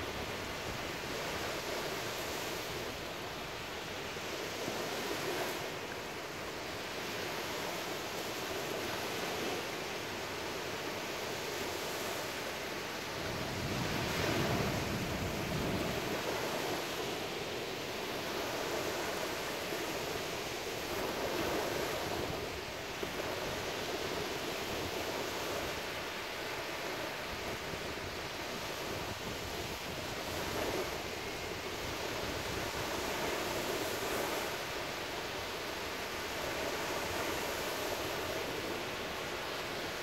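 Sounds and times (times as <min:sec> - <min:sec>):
ocean waves breaking: 0:00.0 - 0:40.0.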